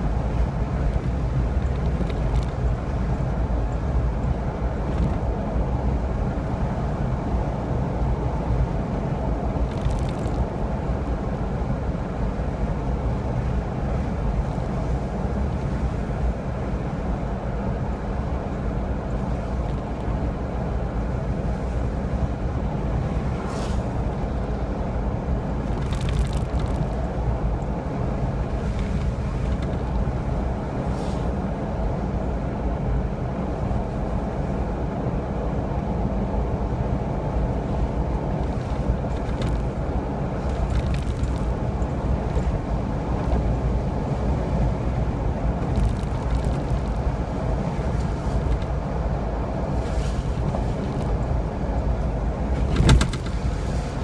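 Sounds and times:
road and engine rumble inside car: 0:00.0 - 0:54.0
car bump: 0:52.6 - 0:53.6.

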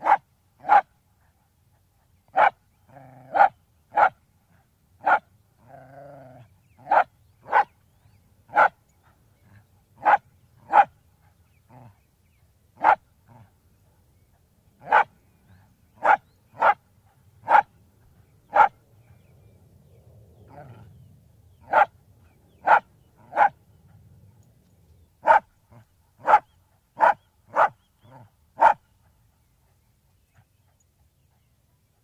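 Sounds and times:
dog barking: 0:00.0 - 0:00.9, 0:02.3 - 0:02.6, 0:03.2 - 0:04.2, 0:05.0 - 0:05.3, 0:06.3 - 0:07.7, 0:08.5 - 0:08.8, 0:10.0 - 0:11.0, 0:12.8 - 0:13.5, 0:14.8 - 0:15.1, 0:16.0 - 0:16.8, 0:17.4 - 0:17.7, 0:18.5 - 0:18.8, 0:21.6 - 0:22.0, 0:22.6 - 0:23.6, 0:25.2 - 0:28.9
dog drawn-out call: 0:00.0 - 0:00.9, 0:02.3 - 0:04.2, 0:05.0 - 0:07.8, 0:08.5 - 0:12.0, 0:12.8 - 0:13.5, 0:14.8 - 0:16.8, 0:17.4 - 0:17.7, 0:18.5 - 0:18.8, 0:21.6 - 0:24.0, 0:25.2 - 0:31.6.

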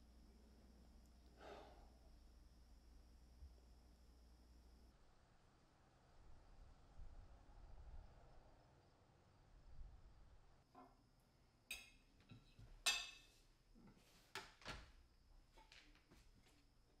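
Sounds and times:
dishes and cutlery clinking: 0:11.7 - 0:13.4.

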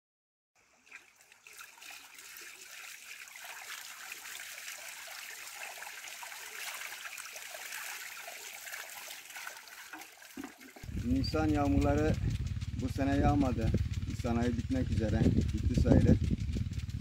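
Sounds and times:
water running and trickling: 0:00.6 - 0:11.0.

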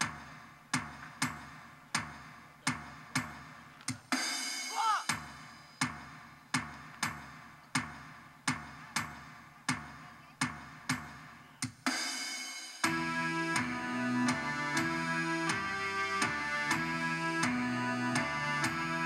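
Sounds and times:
drum beating slowly: 0:00.0 - 0:18.9
melodic tune with sustained notes: 0:12.9 - 0:19.0.

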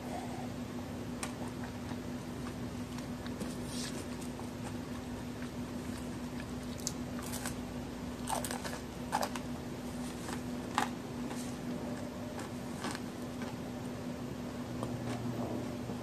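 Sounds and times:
cookie crunching: 0:01.2 - 0:13.7.

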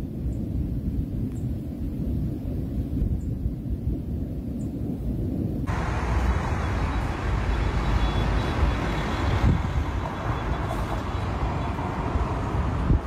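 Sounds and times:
road traffic rumble and hiss: 0:05.6 - 0:13.0.

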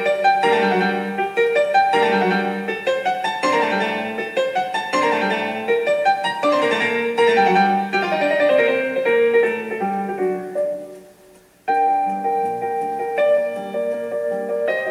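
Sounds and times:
fast piano music: 0:00.0 - 0:14.9.

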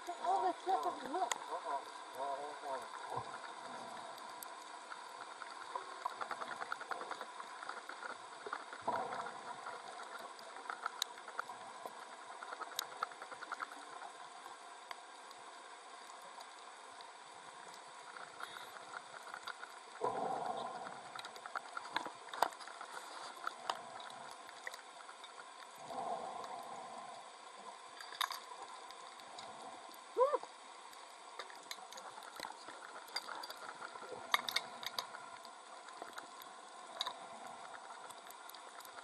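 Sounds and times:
faint clicks and ticks: 0:00.0 - 0:39.0
rushes of bubbles: 0:08.6 - 0:10.0.

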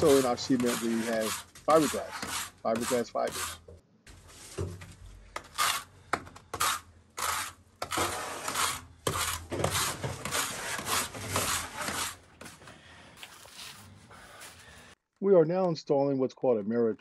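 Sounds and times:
trowels scraping wet cement: 0:00.0 - 0:03.6, 0:05.4 - 0:12.2.

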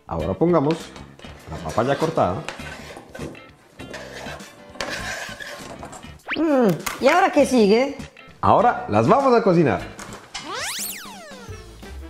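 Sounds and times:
light background music: 0:00.0 - 0:12.0
swooping whistle tone: 0:10.4 - 0:11.7.

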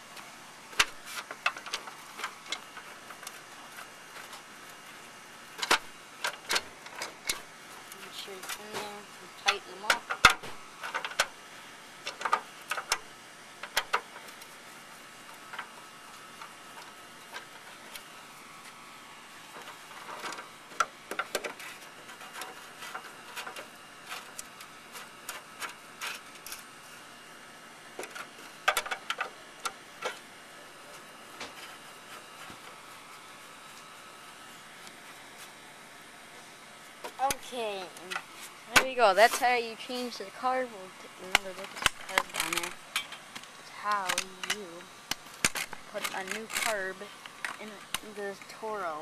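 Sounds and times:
screwdriver clicking and scraping: 0:45.4 - 0:46.9.

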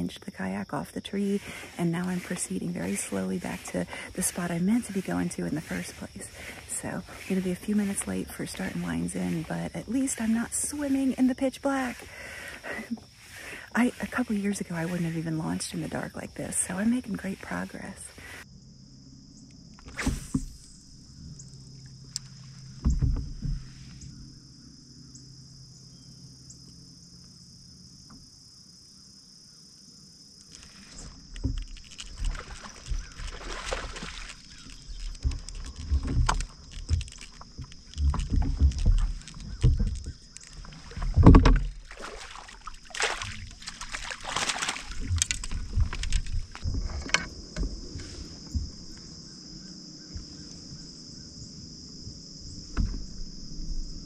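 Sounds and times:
water splashing and sloshing: 0:00.0 - 0:18.5, 0:19.8 - 0:24.4, 0:30.4 - 0:50.9
knocks against kayak hull: 0:22.8 - 0:23.7, 0:40.9 - 0:42.1.

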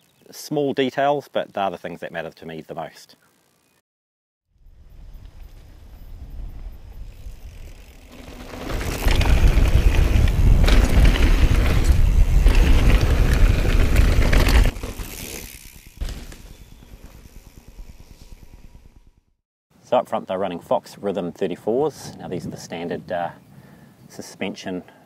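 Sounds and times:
bike tyre rumble: 0:04.6 - 0:19.3
wind on the microphone: 0:08.7 - 0:14.7.

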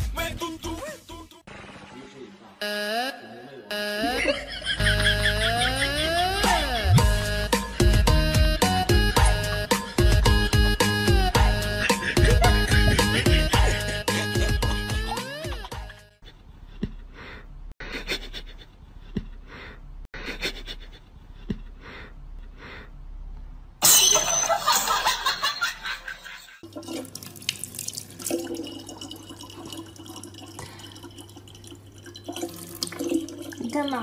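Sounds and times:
water running and splashing: 0:26.6 - 0:34.0.

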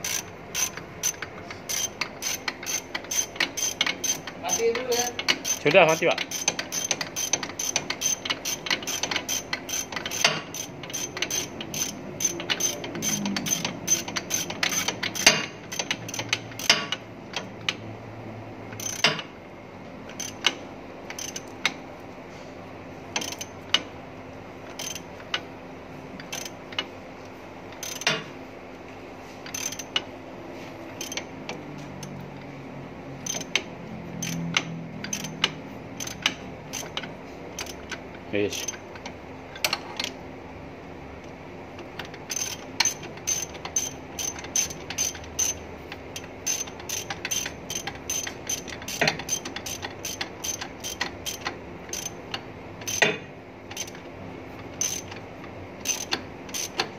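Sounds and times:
ratchet wrench clicking: 0:00.0 - 0:17.8, 0:18.8 - 0:19.2, 0:20.1 - 0:21.8, 0:23.2 - 0:23.9, 0:24.7 - 0:25.4, 0:26.2 - 0:26.9, 0:27.7 - 0:28.2, 0:29.5 - 0:30.0, 0:31.0 - 0:31.3, 0:33.2 - 0:40.1, 0:42.0 - 0:54.0, 0:54.8 - 0:55.2, 0:55.8 - 0:56.9.

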